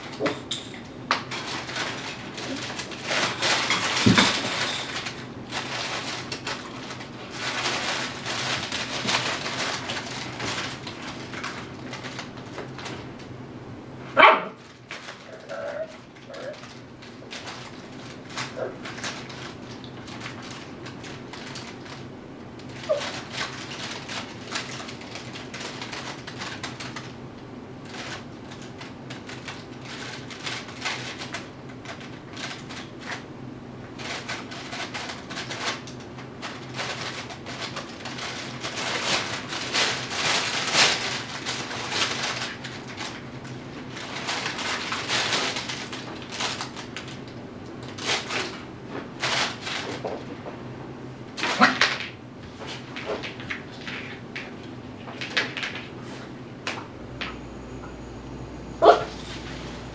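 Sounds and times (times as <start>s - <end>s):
puppy scrambling in fabric tunnel: 22.8s - 24.6s.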